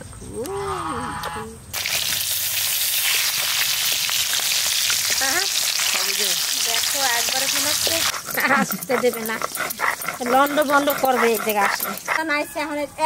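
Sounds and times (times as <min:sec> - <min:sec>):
fish sizzling in hot oil: 0:01.8 - 0:08.3.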